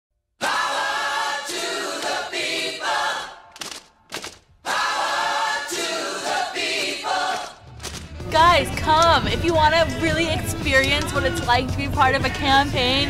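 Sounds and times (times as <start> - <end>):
voices singing jingle in chorus: 4.7 - 7.6.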